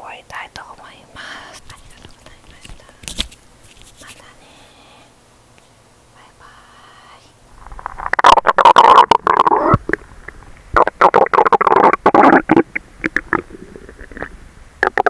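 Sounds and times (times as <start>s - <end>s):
stomach pops: 7.6s - 15.0s
stomach rumbling and gurgling: 7.6s - 15.0s.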